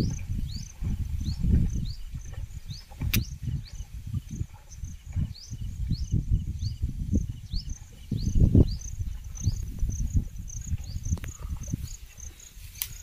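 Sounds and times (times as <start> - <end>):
sharp click: 3.0 - 3.3.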